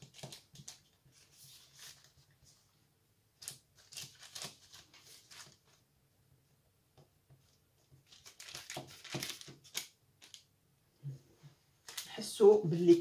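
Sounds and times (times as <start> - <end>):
baking parchment rustling: 0.0 - 2.6, 3.4 - 5.8, 7.8 - 10.5, 11.8 - 13.0.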